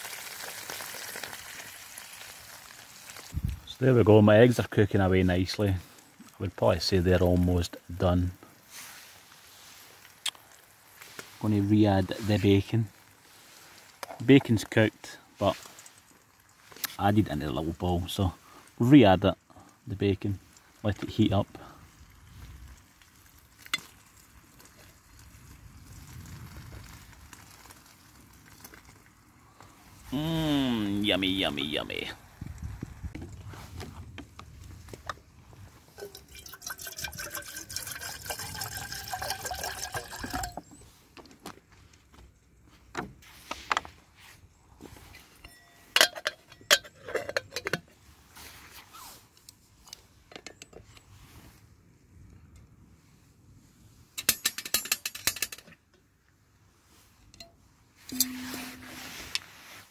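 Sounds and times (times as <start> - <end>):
metallic clink: 45.4 - 47.7, 57.4 - 59.2.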